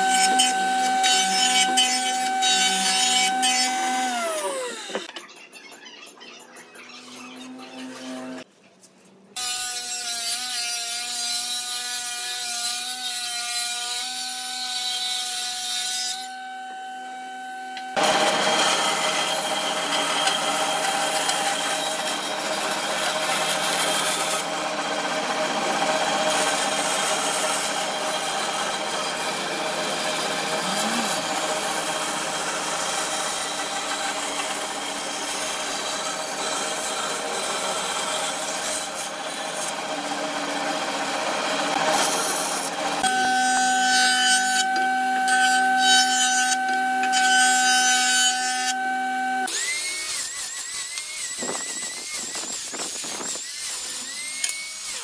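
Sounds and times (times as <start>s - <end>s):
band saw rasping through wood: 0.0s - 5.0s, 9.5s - 51.7s
machine motor whining: 0.0s - 5.1s, 29.8s - 32.8s, 41.7s - 50.3s.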